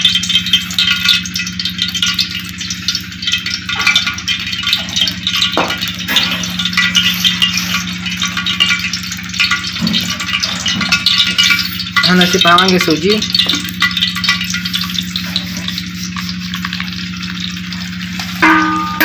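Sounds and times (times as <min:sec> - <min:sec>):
oil crackling in a wok: 0:00.0 - 0:19.0
low hum: 0:13.2 - 0:19.0.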